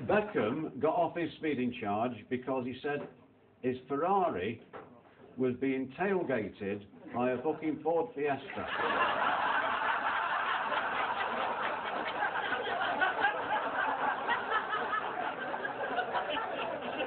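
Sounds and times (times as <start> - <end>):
audience laughing: 8.5 - 17.0.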